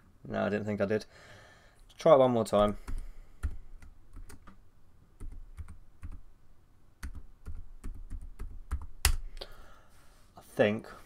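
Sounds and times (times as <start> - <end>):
computer keyboard typing: 2.6 - 4.6, 5.2 - 6.2, 7.0 - 9.2.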